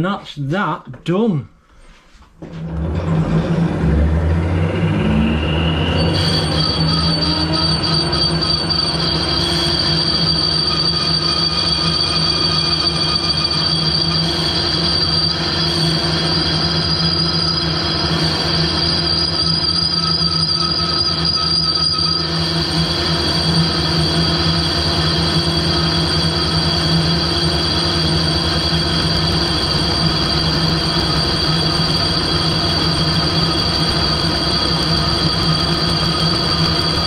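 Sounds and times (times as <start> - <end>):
lathe machining whine: 2.5 - 37.0
high squealing tones: 3.1 - 37.0.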